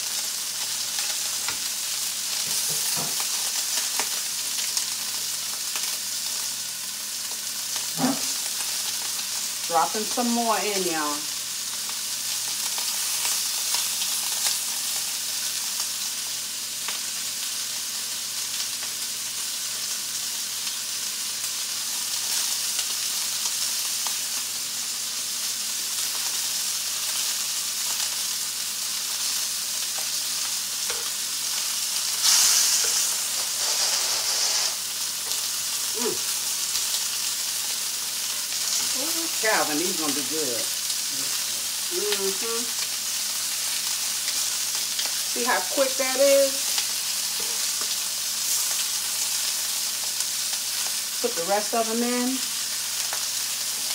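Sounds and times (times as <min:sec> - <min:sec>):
meat sizzling in a skillet: 0:00.0 - 0:53.9
tongs tapping a pan: 0:30.9 - 0:31.2.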